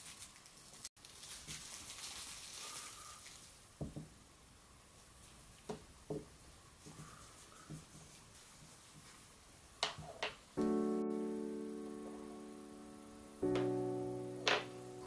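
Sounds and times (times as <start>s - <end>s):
cloth rubbing on wood: 6.8s - 9.4s.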